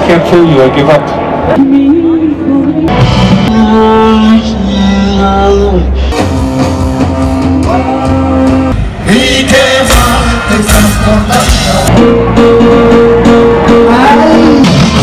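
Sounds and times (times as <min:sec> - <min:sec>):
live rock music with singing: 0:01.1 - 0:15.0.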